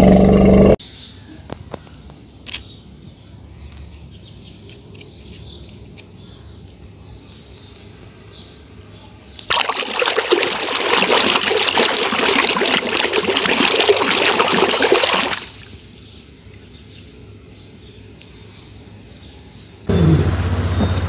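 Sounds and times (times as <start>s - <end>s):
water splashing in a plastic tub: 9.5s - 16.7s.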